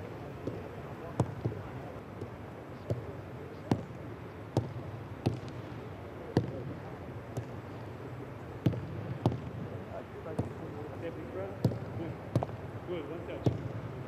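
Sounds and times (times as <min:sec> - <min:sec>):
footballs kicked thuds: 0:00.4 - 0:01.6, 0:03.7 - 0:05.6, 0:06.3 - 0:07.6, 0:08.6 - 0:09.6, 0:11.6 - 0:12.6, 0:13.4 - 0:13.7.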